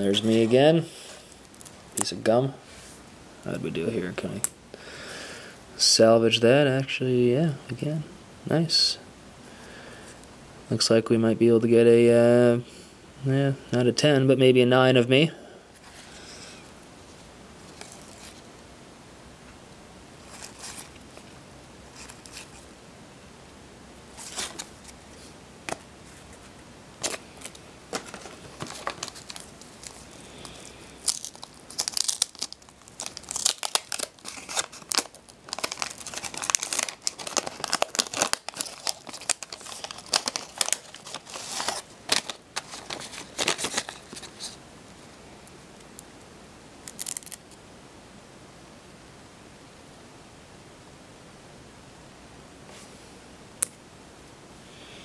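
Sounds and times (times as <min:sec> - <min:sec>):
wrapper crinkling and tearing: 0:27.0 - 0:44.6, 0:46.8 - 0:47.5.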